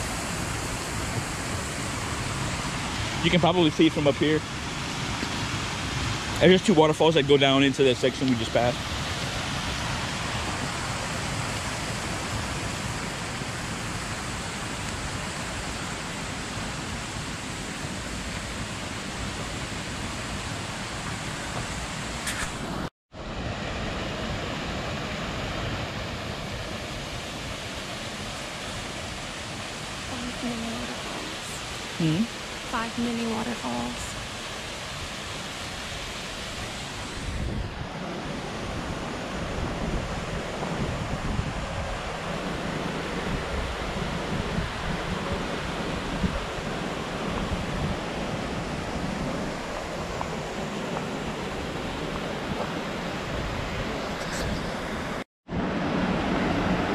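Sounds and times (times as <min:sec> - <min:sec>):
waterfall rushing over rocks: 0:00.0 - 0:56.9
wind buffeting microphone: 0:36.6 - 0:56.9.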